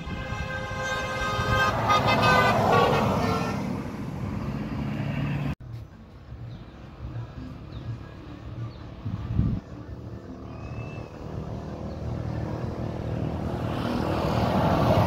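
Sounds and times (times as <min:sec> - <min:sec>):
vehicle horn blast: 0:00.0 - 0:03.8
faint road traffic: 0:00.0 - 0:15.0
vehicle speeding past: 0:09.8 - 0:15.0.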